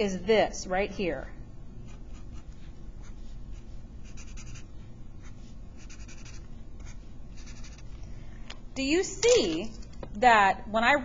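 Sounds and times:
marker scratching on paper: 1.8s - 7.9s.

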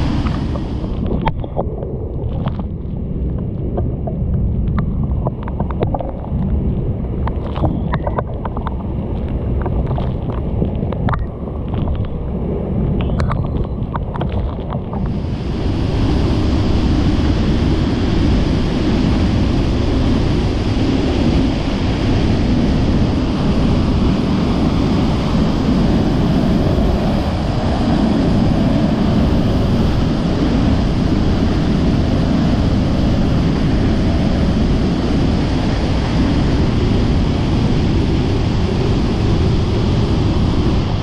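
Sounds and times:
waterfall roaring: 0.0s - 1.1s, 15.0s - 41.0s.

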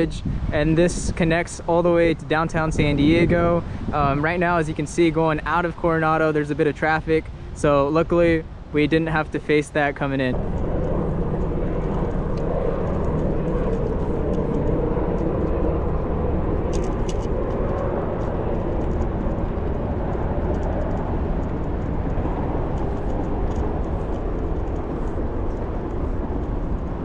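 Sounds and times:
wind and bicycle road rumble: 0.0s - 27.0s
car traffic on bridge: 10.2s - 27.0s.

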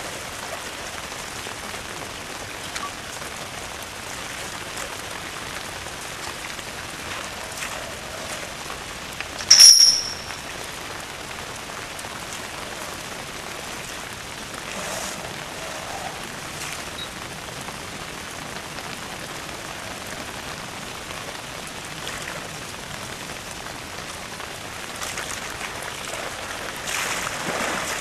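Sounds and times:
rain on concrete and water: 0.0s - 28.0s
sharp high-pitched squeak: 9.4s - 10.4s.

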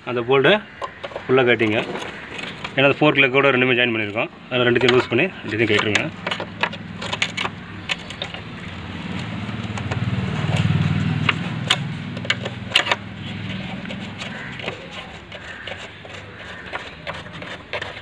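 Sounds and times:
motor vehicle engine running: 0.6s - 18.0s
spanner clicking on bolts: 4.8s - 18.0s.

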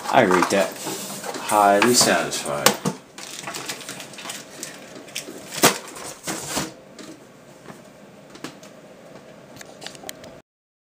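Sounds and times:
cardboard rustling scrape: 0.1s - 2.4s, 3.2s - 6.8s.

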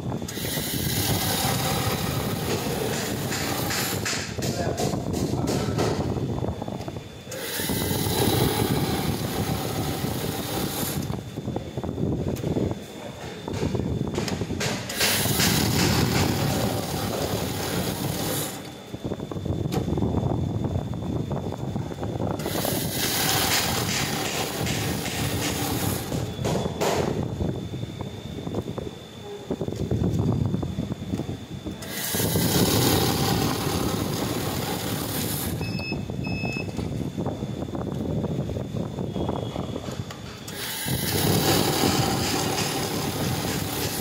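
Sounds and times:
money counting machine whirring: 0.3s - 4.0s, 7.3s - 11.2s, 14.9s - 18.8s, 22.4s - 26.3s, 31.8s - 35.8s, 40.5s - 44.0s
short machine beeps: 35.6s - 36.8s.

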